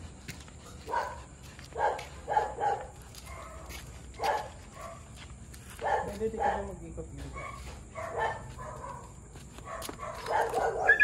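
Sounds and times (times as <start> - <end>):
dog barking: 0.9 - 1.2, 1.8 - 5.1, 5.8 - 6.7, 7.4 - 11.0.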